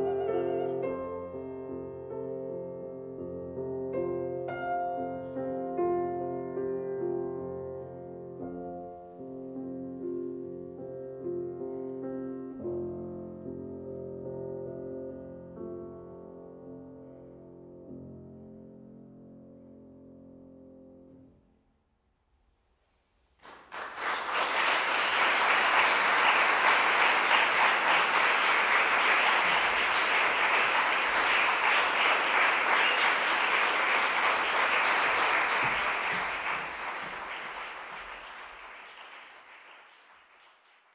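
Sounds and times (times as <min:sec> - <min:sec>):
audience applause: 0:23.4 - 0:40.9.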